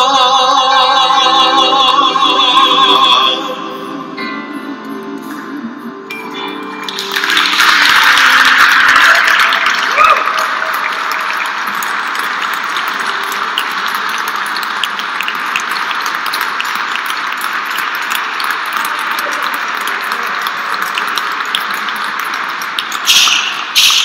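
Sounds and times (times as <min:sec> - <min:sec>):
crowd clapping: 0:06.8 - 0:24.0.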